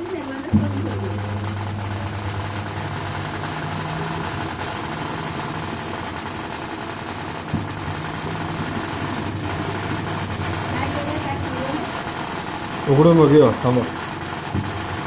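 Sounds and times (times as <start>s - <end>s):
washing machine motor hum: 0.0s - 15.0s
loose mechanical rattle: 0.5s - 15.0s.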